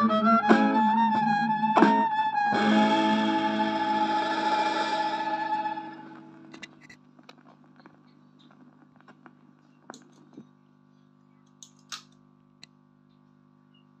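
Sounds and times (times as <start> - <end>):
steady hum: 0.1 - 13.7
stylus crackles and clicks: 6.2 - 10.4.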